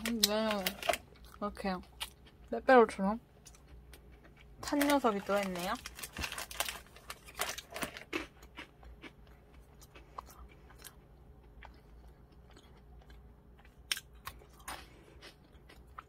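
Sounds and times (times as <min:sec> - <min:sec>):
crunchy snack being chewed: 0:03.4 - 0:16.0.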